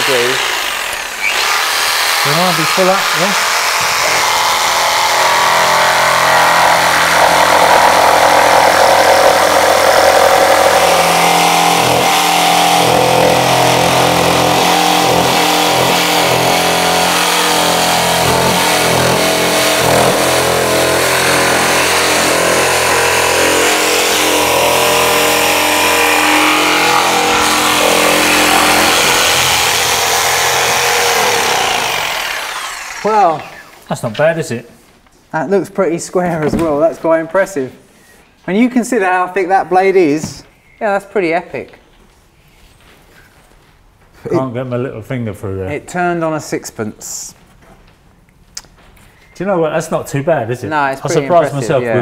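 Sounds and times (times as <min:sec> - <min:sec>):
jigsaw sawing through board: 0:00.0 - 0:33.9.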